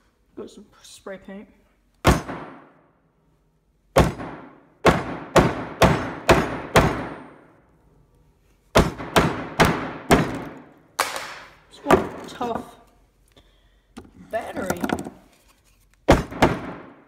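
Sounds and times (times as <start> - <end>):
hammer smashing phone: 8.8 - 12.4, 16.1 - 17.0.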